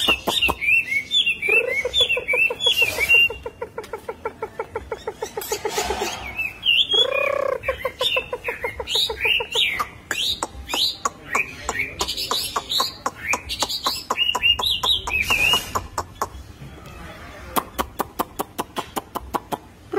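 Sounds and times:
bird singing whistled notes: 0.0s - 3.4s, 5.4s - 8.3s.

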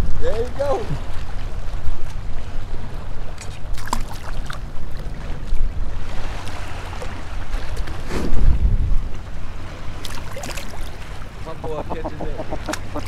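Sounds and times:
choppy water: 0.0s - 13.0s
wind buffeting microphone: 4.7s - 13.0s
fish splashing: 10.0s - 13.0s.

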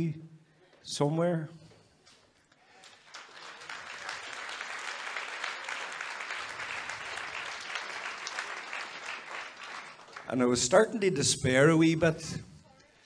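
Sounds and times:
audience applauding: 2.6s - 10.9s.

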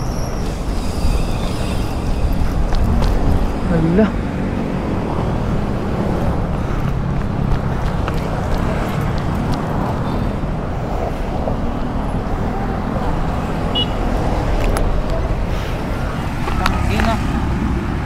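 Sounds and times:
car engines passing: 0.0s - 18.0s
low traffic rumble: 0.0s - 18.0s.

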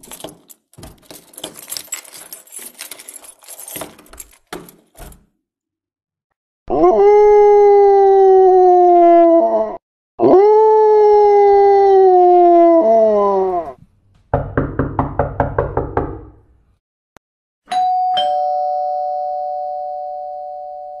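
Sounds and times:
long howls: 6.7s - 13.8s
ding-dong doorbell chime: 17.7s - 21.0s.

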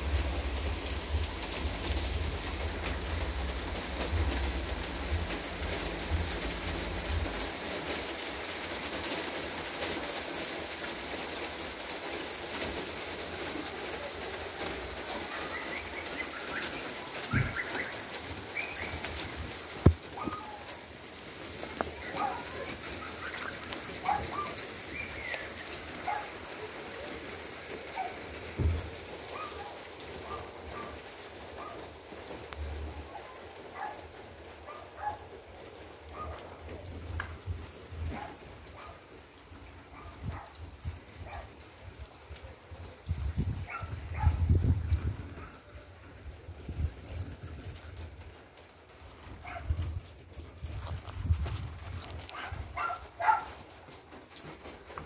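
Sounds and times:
steady rain on pavement: 0.0s - 55.0s
birds chirping: 15.2s - 19.3s, 21.9s - 26.3s.

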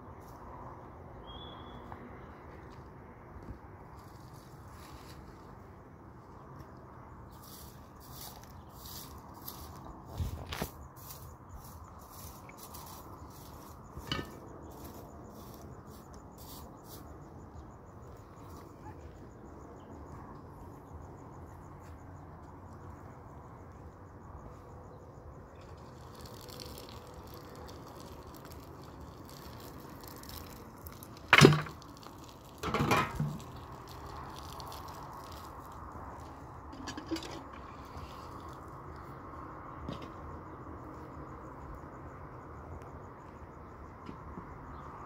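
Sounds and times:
water splashing onto ashes: 25.8s - 35.8s.

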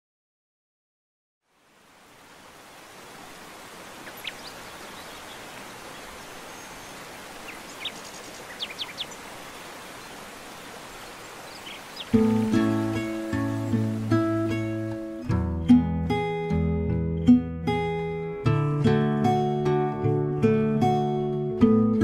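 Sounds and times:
rushing outdoor ambience: 1.5s - 15.2s
acoustic guitar playing: 12.1s - 22.0s.

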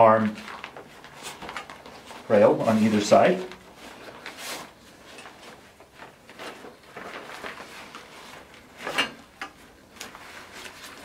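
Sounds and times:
fabric rustling: 0.3s - 11.0s.

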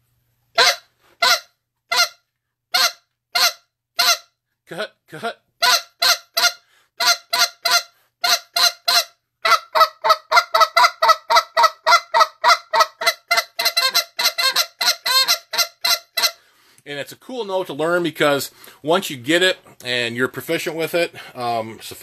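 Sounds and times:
goose call honks: 0.6s - 4.3s, 5.6s - 16.4s.

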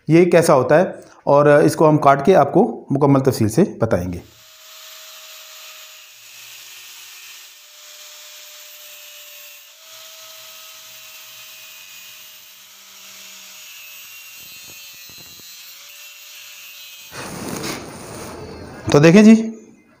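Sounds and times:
angle grinder cutting metal: 4.2s - 17.4s.

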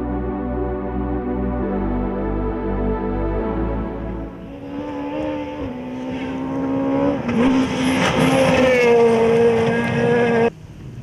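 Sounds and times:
rally car engine revving high: 3.7s - 10.5s.

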